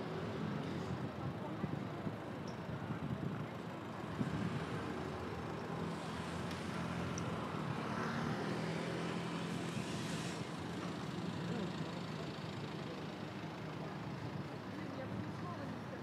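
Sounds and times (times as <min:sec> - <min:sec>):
vehicle engine hum: 0:00.0 - 0:16.0
vehicle passing: 0:04.1 - 0:12.0.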